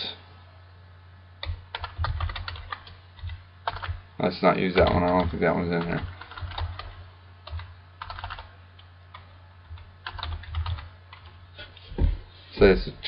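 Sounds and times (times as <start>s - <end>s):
faint low hum: 0.0s - 13.0s
keyboard typing: 1.4s - 4.0s, 4.8s - 8.5s, 9.1s - 11.4s.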